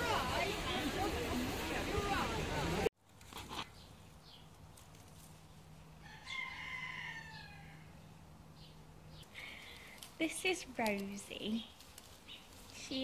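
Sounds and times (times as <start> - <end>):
rooster crowing: 6.0 - 8.0.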